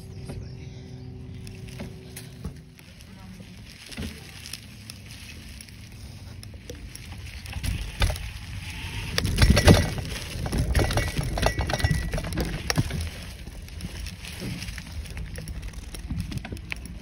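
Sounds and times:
low rumble: 0.0s - 17.0s
mountain bike rattling over trail: 1.2s - 17.0s.

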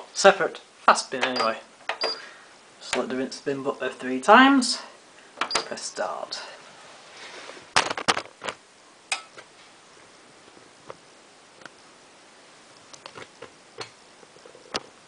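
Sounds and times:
washing machine clicking: 1.2s - 2.2s.

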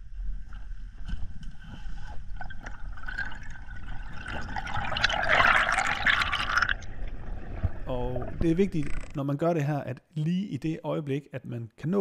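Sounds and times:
underwater rumble: 0.0s - 9.2s.

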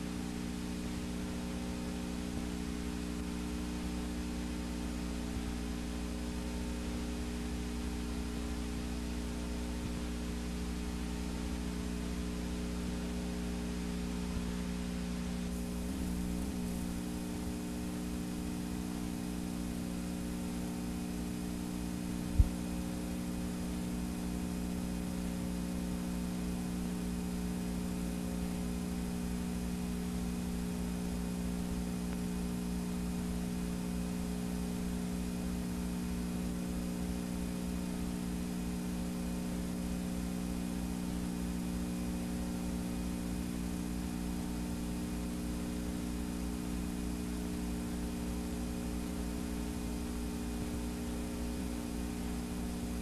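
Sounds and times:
electrical hum with hiss: 0.0s - 53.0s.

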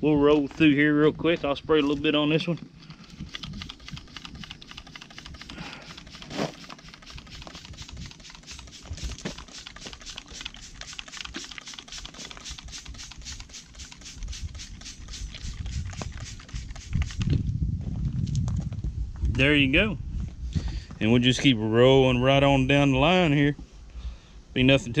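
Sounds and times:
spray bottle spritzing: 3.1s - 17.4s.

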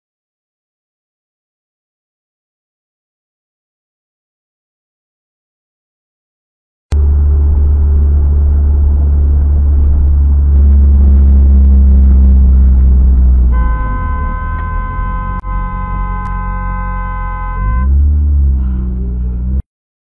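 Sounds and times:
car engine and road rumble: 6.9s - 19.6s
car horn held: 13.5s - 18.0s.

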